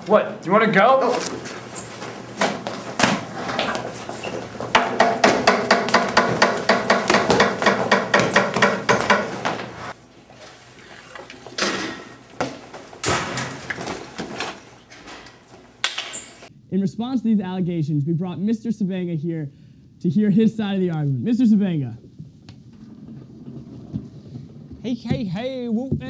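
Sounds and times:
rapid knocks and thuds: 4.6s - 9.8s, 22.0s - 26.0s.

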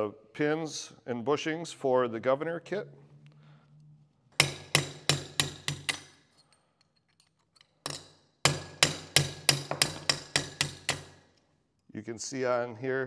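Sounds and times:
hammer striking steel punch: 4.4s - 6.1s, 7.9s - 11.2s.

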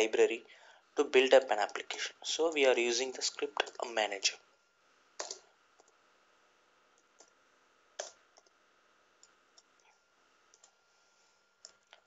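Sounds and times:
keyboard keystrokes: 5.2s - 5.9s.

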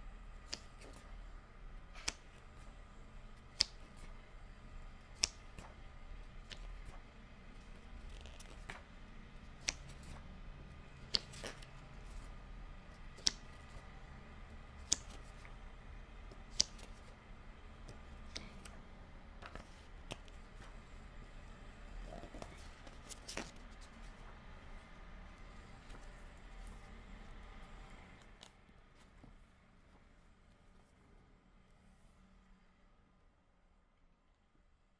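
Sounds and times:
book pages turning with snaps: 0.4s - 1.1s, 2.0s - 2.7s, 3.4s - 4.1s, 5.1s - 5.8s, 6.4s - 7.0s, 7.6s - 8.9s, 9.5s - 10.3s, 10.9s - 12.3s, 13.0s - 13.9s, 14.8s - 15.6s, 16.3s - 17.2s, 17.8s - 18.8s, 19.4s - 20.8s, 22.1s - 24.4s, 25.3s - 29.4s.

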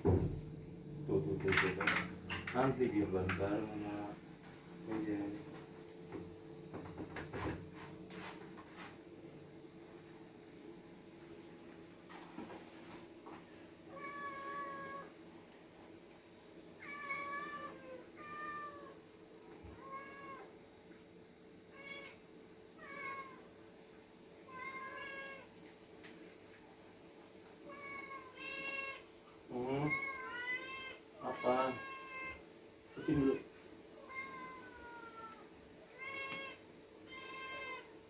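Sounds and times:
faint steady hum: 0.0s - 38.0s
cats meowing: 13.9s - 15.2s, 16.8s - 19.0s, 19.6s - 20.5s, 21.7s - 22.2s, 22.8s - 23.5s, 24.5s - 25.5s, 27.6s - 38.0s.

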